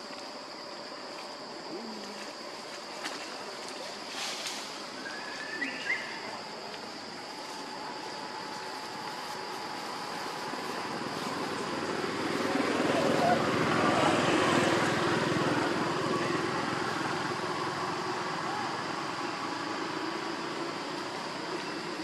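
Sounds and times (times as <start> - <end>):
high-pitched insect drone: 0.0 - 22.0
faint chirps: 3.8 - 10.9.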